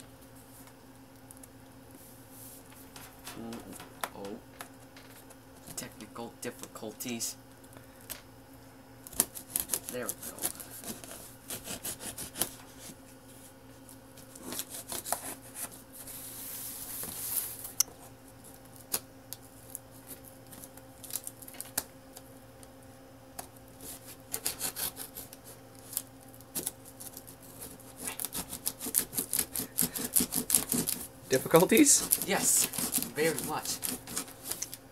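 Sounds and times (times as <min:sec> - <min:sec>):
knife cutting packing tape: 0:09.1 - 0:12.6, 0:14.3 - 0:15.7, 0:23.8 - 0:34.8.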